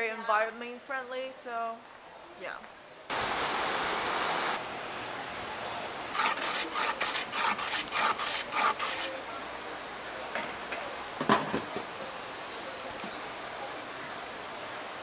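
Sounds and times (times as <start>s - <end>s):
steady hiss: 3.1s - 11.2s
hand plane scraping shavings: 6.2s - 9.1s.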